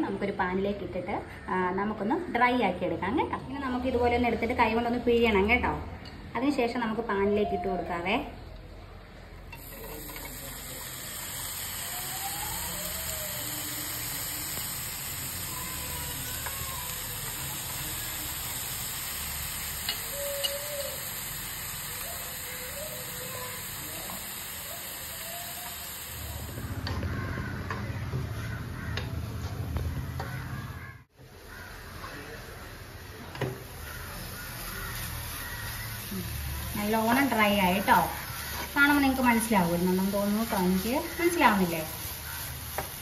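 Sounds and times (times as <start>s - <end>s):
food sizzling in a pan: 9.5s - 27.4s, 31.3s - 43.0s.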